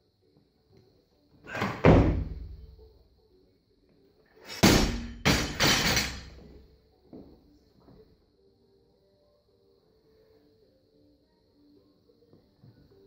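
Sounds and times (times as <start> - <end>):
barbell plates crashing on platform: 4.5 - 6.4.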